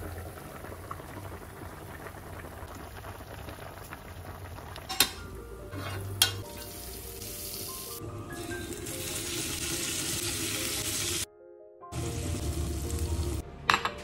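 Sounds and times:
shrimp sizzling in a frying pan: 3.1s - 11.3s, 12.0s - 13.4s.

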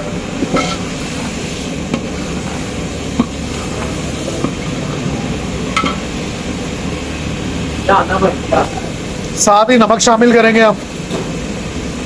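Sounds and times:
metal ladle stirring in pot: 0.0s - 4.8s
gas burner: 0.0s - 12.0s
oil frying: 0.0s - 12.0s.

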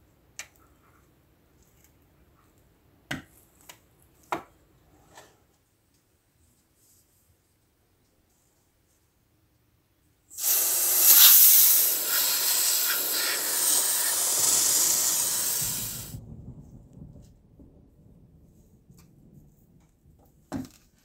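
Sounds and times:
aerosol can spraying hiss: 10.3s - 16.2s.

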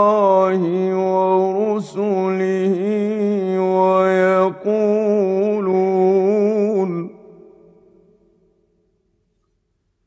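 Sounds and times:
man reciting melodically: 0.0s - 7.4s.

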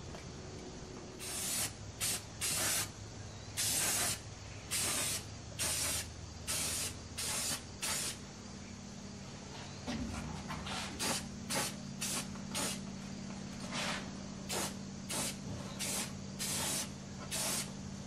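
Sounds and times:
steady low hum: 0.0s - 18.0s
spray paint can hissing: 1.2s - 2.9s, 3.6s - 8.2s, 11.0s - 12.8s, 14.5s - 17.7s.

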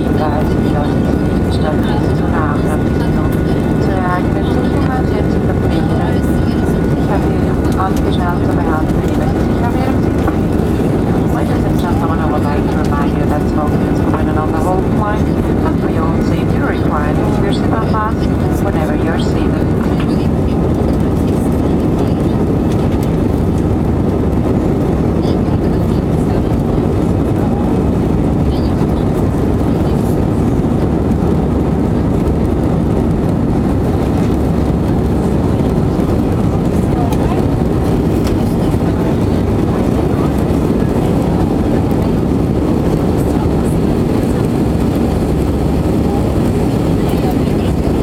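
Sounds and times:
aircraft cabin engine rush: 0.0s - 48.0s.

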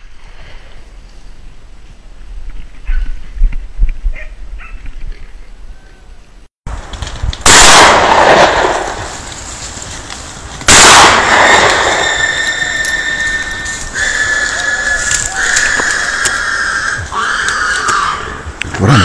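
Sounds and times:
shotgun shots echoing: 7.4s - 9.1s, 10.7s - 12.4s.

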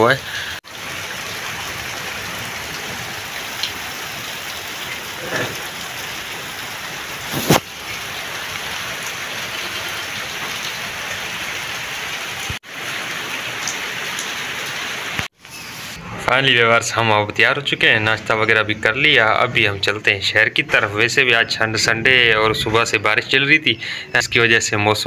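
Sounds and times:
steady rain falling: 0.0s - 16.0s.

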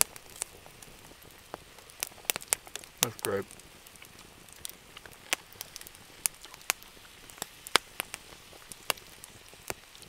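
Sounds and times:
campfire crackling: 0.0s - 10.0s.

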